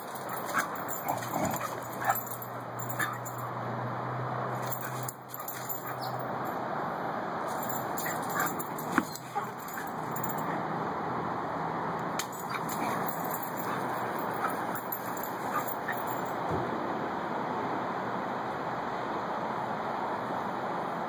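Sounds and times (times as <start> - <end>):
dogs barking: 0.0 - 3.4, 4.6 - 6.2, 7.6 - 10.6, 12.3 - 16.3
dogs yipping and whimpering: 0.2 - 3.4, 4.6 - 6.2, 7.6 - 10.6, 12.4 - 16.3.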